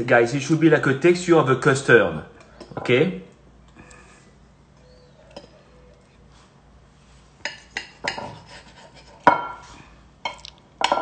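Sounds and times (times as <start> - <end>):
cutlery clinking on a ceramic plate: 7.4 - 8.5.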